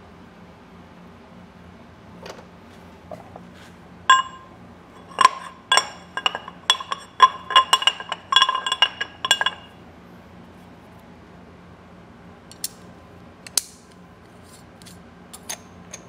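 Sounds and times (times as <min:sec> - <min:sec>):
metal plate clinking: 0:04.1 - 0:09.8.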